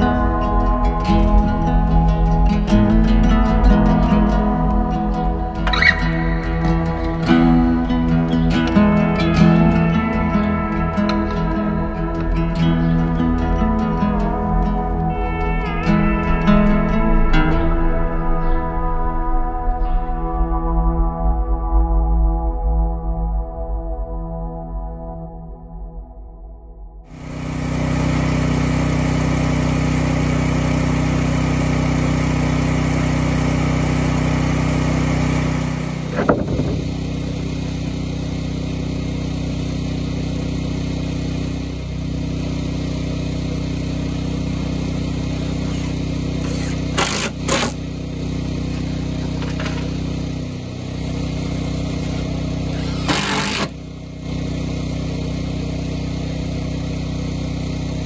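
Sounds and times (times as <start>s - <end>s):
generator engine running: 0.0s - 19.6s, 27.0s - 58.0s
cordless drill driving screws: 45.5s - 47.8s, 52.0s - 53.8s.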